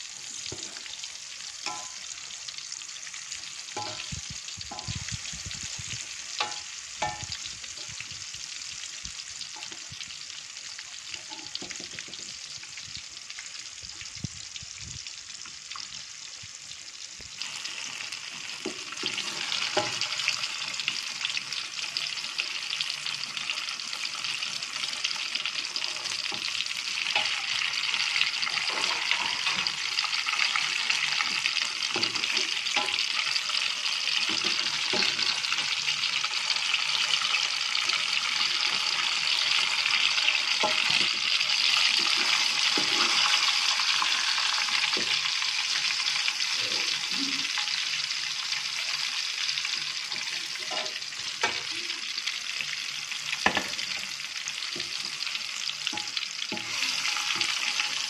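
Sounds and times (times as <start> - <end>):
food sizzling in hot oil: 0.0 - 58.0
metal spatula scraping pan: 26.0 - 29.9, 55.9 - 58.0.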